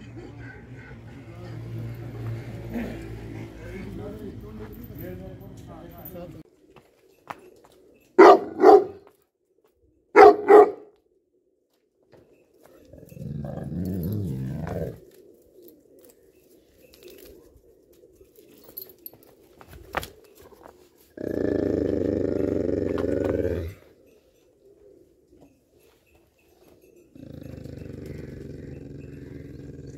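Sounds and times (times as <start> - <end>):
dog growling low: 0.4 - 4.0, 12.8 - 15.2, 21.2 - 24.0, 27.1 - 29.9
dog barking: 8.2 - 9.1, 10.1 - 10.9.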